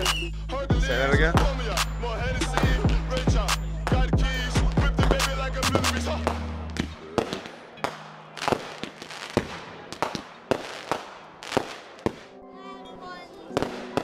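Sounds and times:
fireworks bangs and pops: 2.5 - 4.2, 4.8 - 12.4, 13.5 - 14.0.

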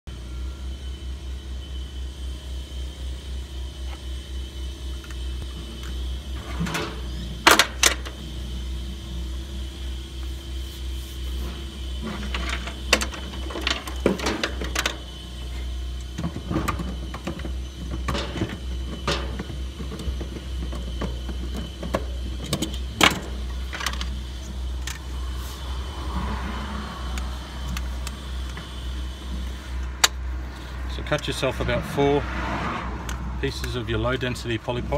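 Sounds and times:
steady low rumble: 1.7 - 34.9
pipe cutter scraping: 10.2 - 26.4
clicks and knocks of tools: 12.0 - 15.0, 16.0 - 25.1, 27.1 - 28.7, 29.3 - 30.2.

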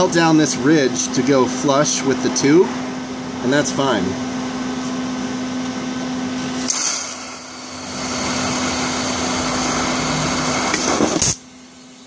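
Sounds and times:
steady low hum: 0.0 - 12.0
welding arc hissing buzz: 6.6 - 12.0
welding arc crackle: 6.7 - 11.8.

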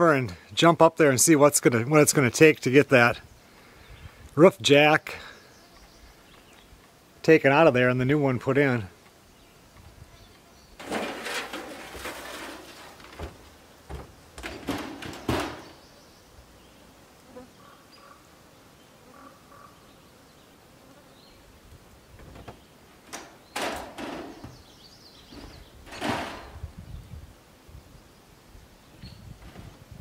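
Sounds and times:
insects buzzing faintly: 0.0 - 30.0
footsteps on metal roof: 10.8 - 15.8, 22.2 - 24.7
ladder rattling: 10.8 - 15.8, 23.1 - 24.6, 25.4 - 26.6.

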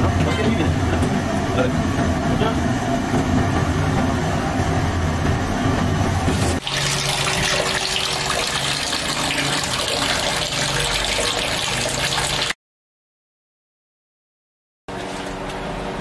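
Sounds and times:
water pouring into metal bowl: 6.6 - 12.6.

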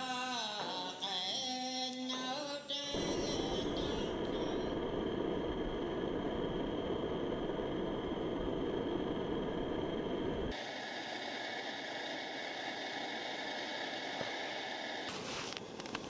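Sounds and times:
wind rushing over microphone: 3.0 - 10.6
even hiss: 3.0 - 16.0.

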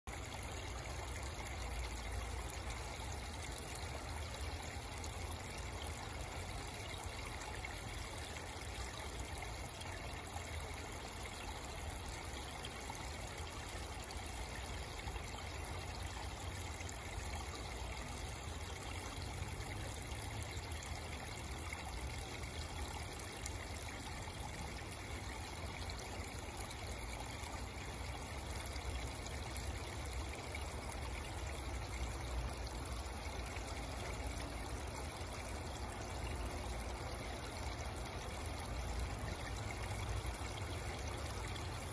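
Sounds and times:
trickle of running water: 0.1 - 41.9.

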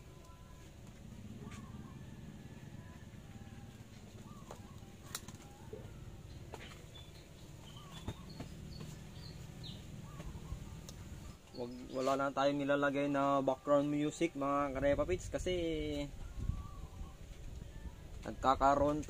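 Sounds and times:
faint bird calls: 0.2 - 12.3
high bird chirps: 4.2 - 12.2.

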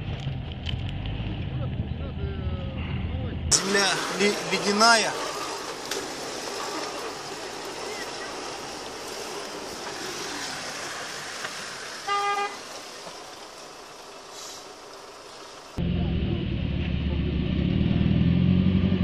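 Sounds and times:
engine and road noise: 0.0 - 19.0
vehicle horn toot: 12.0 - 12.7.

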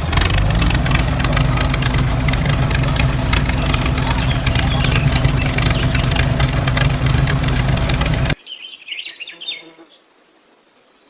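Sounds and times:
tractor engine running: 0.0 - 8.4
birds chirping: 0.0 - 9.7.

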